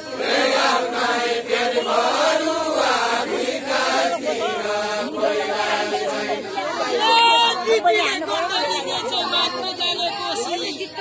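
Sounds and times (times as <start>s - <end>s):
men singing together: 0.0s - 6.9s.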